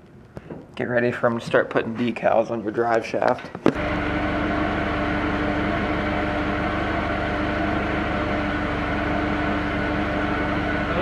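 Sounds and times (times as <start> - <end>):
hydraulic pump motor humming: 3.7 - 11.0.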